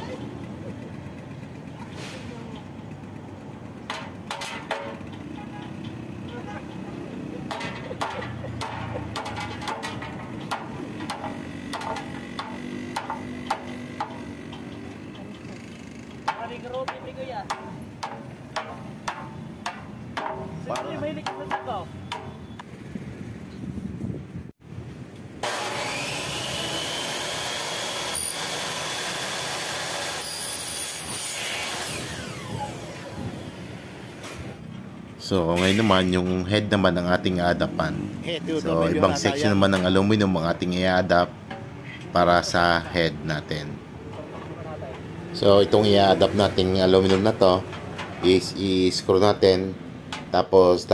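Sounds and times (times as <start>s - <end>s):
miter saw cutting aluminum: 3.8s - 22.5s, 25.4s - 34.5s
wooden block knocking on metal sill: 7.5s - 14.8s, 16.2s - 22.6s.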